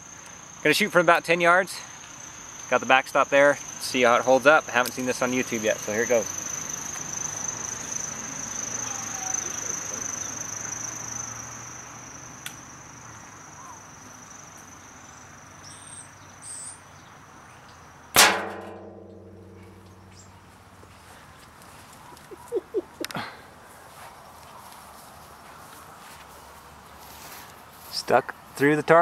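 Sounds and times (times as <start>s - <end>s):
arrow hitting steel drum: 18.2s - 20.0s
steel drum ringing: 18.2s - 20.1s.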